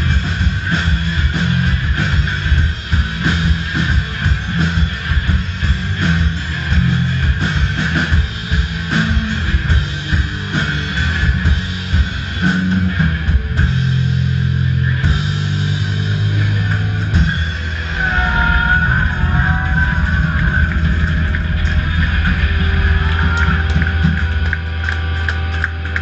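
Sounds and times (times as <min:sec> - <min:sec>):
rock band playing: 0:00.0 - 0:26.0
high wavering note: 0:17.7 - 0:24.5.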